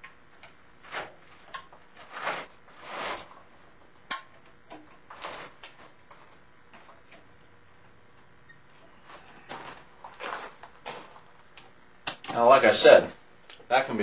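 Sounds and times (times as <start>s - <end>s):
rubber seal rubbing scrapes: 2.0s - 3.4s.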